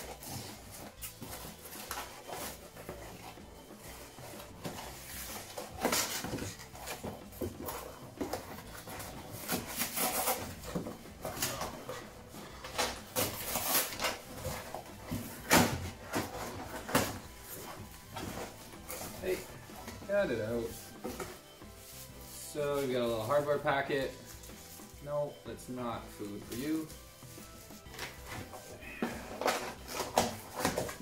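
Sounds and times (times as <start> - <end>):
cardboard box rustling and scraping: 0.0 - 23.5.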